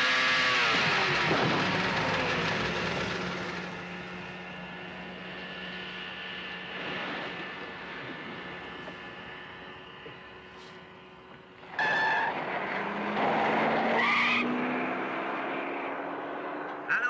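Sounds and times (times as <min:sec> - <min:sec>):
speedboat engine whining: 0:00.0 - 0:14.6.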